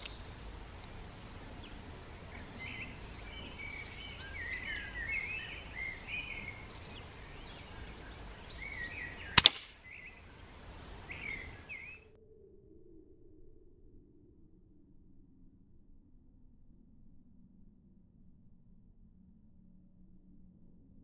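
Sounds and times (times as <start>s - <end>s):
small birds chirping: 0.0s - 12.0s
sharp air rifle shot: 9.3s - 9.8s.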